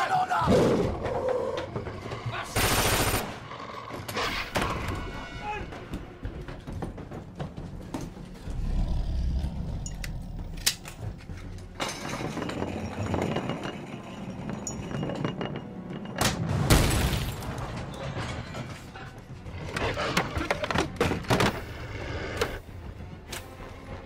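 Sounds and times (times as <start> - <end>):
crashing and breaking: 16.3 - 18.9.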